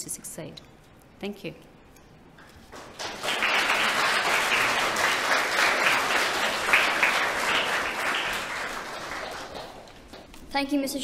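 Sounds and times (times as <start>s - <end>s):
audience applauding: 2.7s - 10.3s.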